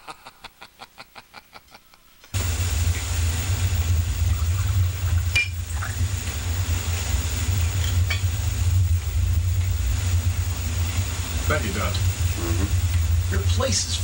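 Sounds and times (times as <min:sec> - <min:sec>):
low rumble with hiss: 0:02.4 - 0:14.0.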